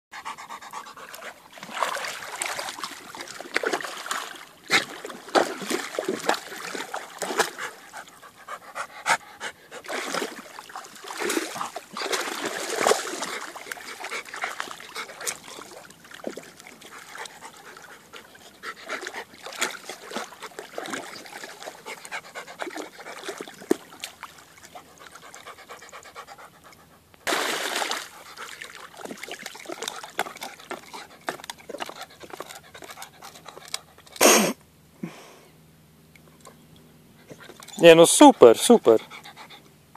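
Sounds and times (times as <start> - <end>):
dog panting: 0.1 - 1.6, 7.3 - 9.9, 13.2 - 15.7, 16.8 - 23.5, 24.7 - 27.1, 29.7 - 34.2, 38.6 - 39.7
splashing through water: 1.0 - 8.2, 9.8 - 25.6, 27.3 - 33.0.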